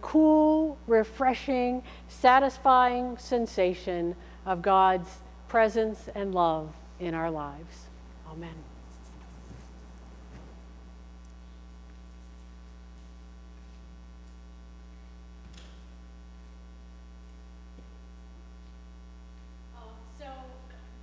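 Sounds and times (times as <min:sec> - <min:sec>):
electrical mains hum: 0:00.0 - 0:21.0.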